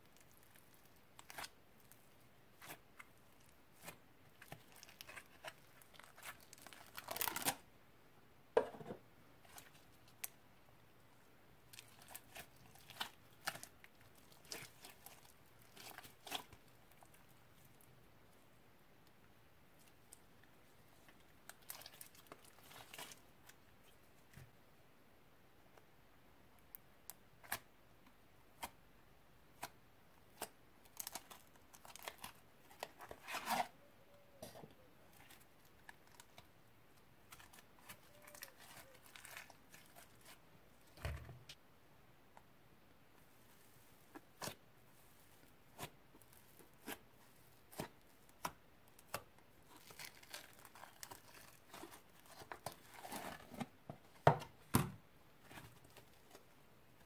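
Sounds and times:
slime crackly tearing: 0:03.8 - 0:07.6, 0:47.7 - 0:53.4.

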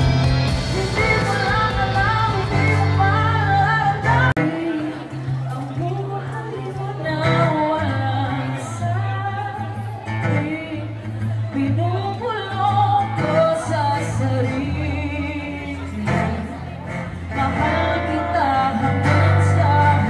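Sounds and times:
low bass notes: 0:00.0 - 0:04.5
guitar: 0:00.0 - 0:20.0
person singing: 0:00.0 - 0:20.0.

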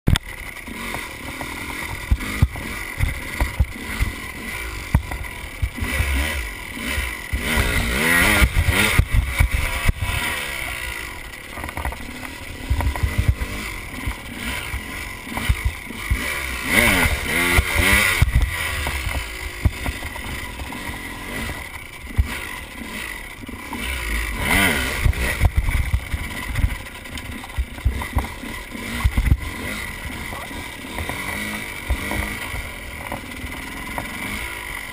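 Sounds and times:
dirt bike engine revving: 0:00.1 - 0:34.9.

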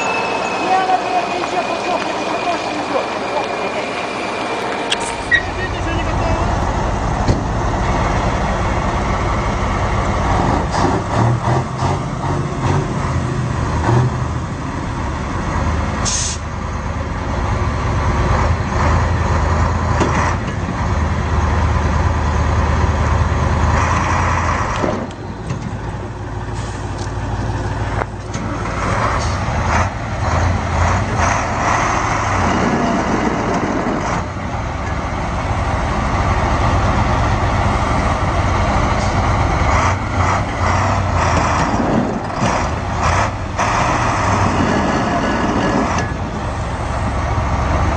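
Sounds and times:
heavy diesel truck engines: 0:00.0 - 0:47.9
brief high hiss: 0:16.0 - 0:16.4.

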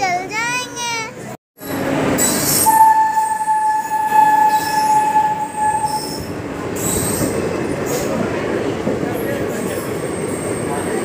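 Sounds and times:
train coaches rumbling past: 0:00.8 - 0:11.0
train wheels squealing: 0:01.6 - 0:08.3, 0:09.3 - 0:11.0.

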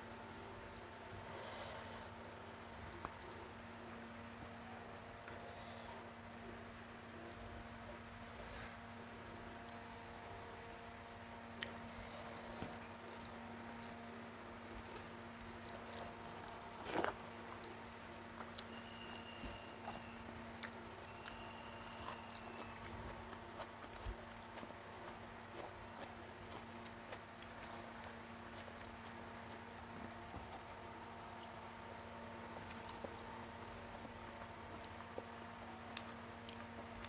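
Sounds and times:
steady low hum: 0:00.0 - 0:37.0
person chewing: 0:11.5 - 0:18.8, 0:19.8 - 0:31.8, 0:34.0 - 0:35.3.

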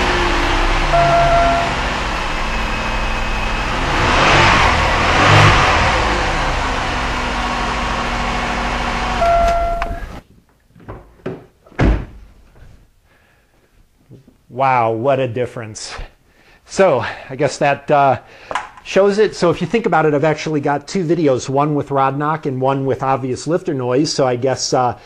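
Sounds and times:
car engine running: 0:00.0 - 0:10.2.

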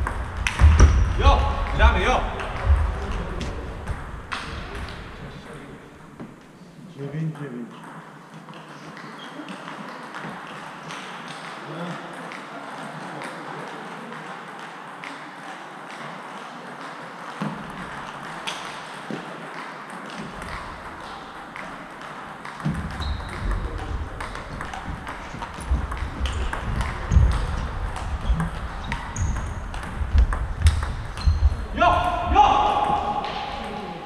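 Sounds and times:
table tennis balls clicking: 0:00.0 - 0:00.9, 0:07.7 - 0:33.8
low thuds and louder hits: 0:00.0 - 0:03.1.

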